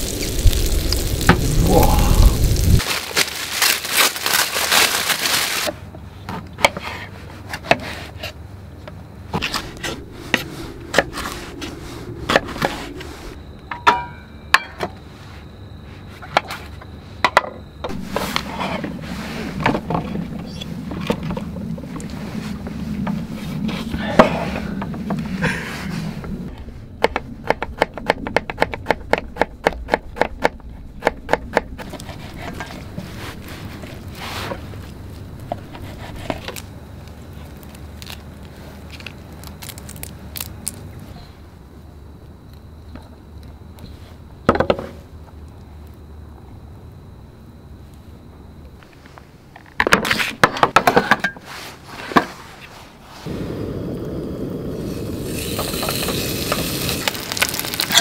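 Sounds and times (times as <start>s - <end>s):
food sizzling: 0.0s - 5.7s, 53.2s - 58.0s.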